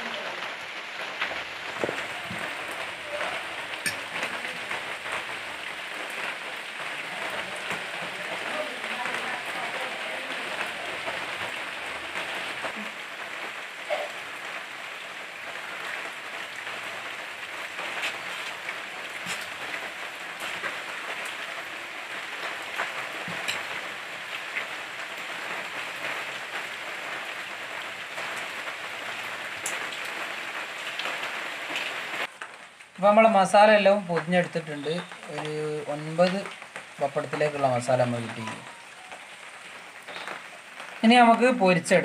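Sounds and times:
rain hissing: 0:00.0 - 0:42.0.

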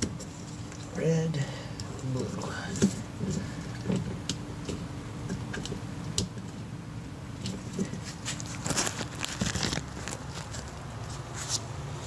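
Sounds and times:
gloved hands rustling: 0:07.4 - 0:11.7.

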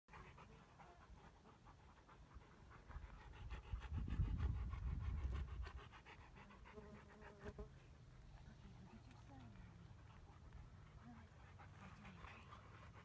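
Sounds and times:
wind buffeting microphone: 0:02.9 - 0:06.0.

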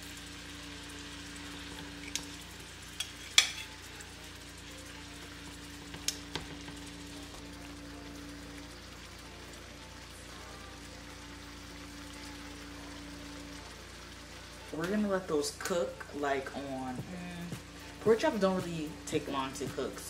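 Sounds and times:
meat sizzling in a frying pan: 0:00.0 - 0:20.0
metal tongs clicking on pan: 0:02.0 - 0:02.4, 0:03.0 - 0:03.8, 0:05.9 - 0:06.5.

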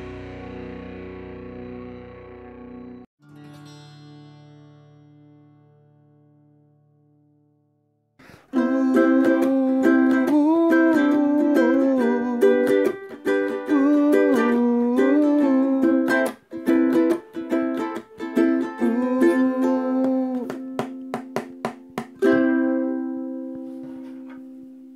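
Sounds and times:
ukulele strumming: 0:08.2 - 0:24.9
person humming wordlessly: 0:08.4 - 0:13.0, 0:13.6 - 0:16.4, 0:18.7 - 0:20.8.

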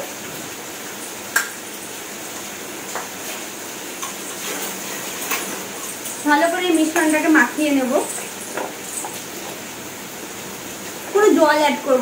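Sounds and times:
steel bowls and utensils clinking: 0:04.0 - 0:09.6.

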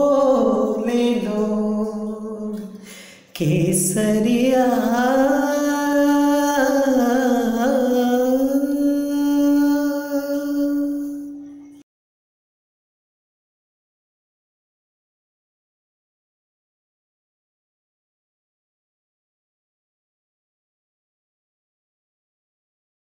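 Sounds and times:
solo voice singing long notes: 0:00.0 - 0:11.8.

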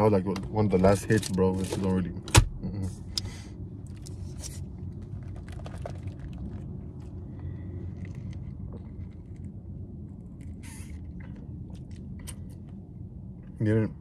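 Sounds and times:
low car cabin rumble: 0:00.0 - 0:14.0.

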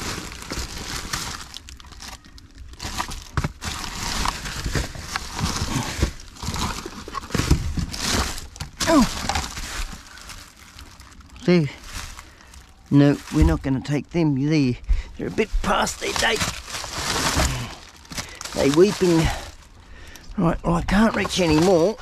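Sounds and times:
plastic packaging crinkling: 0:00.0 - 0:14.2, 0:15.2 - 0:20.2, 0:20.8 - 0:22.0
items knocking: 0:02.8 - 0:10.4, 0:21.0 - 0:22.0.

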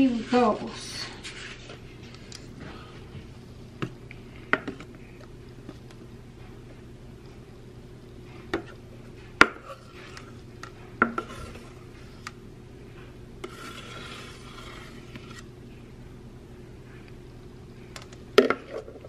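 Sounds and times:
soft scraping: 0:13.4 - 0:15.4.

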